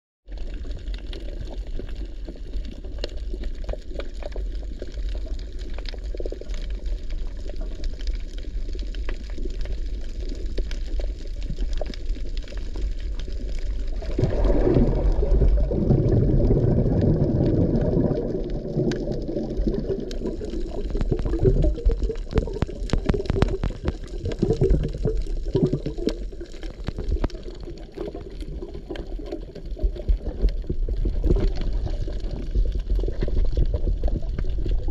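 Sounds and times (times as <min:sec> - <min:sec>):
underwater water rumble: 0:00.3 - 0:34.9
dense water rush: 0:12.8 - 0:34.9.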